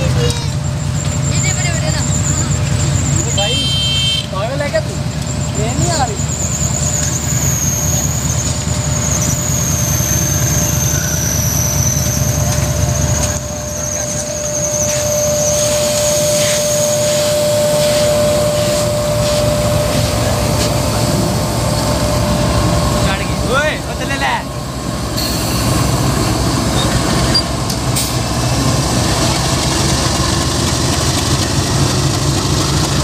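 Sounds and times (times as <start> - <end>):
high wavering squeal: 0.0 - 3.6, 4.6 - 29.4
diesel locomotive engine rumble: 0.0 - 33.0
steady lower tone: 5.0 - 27.8.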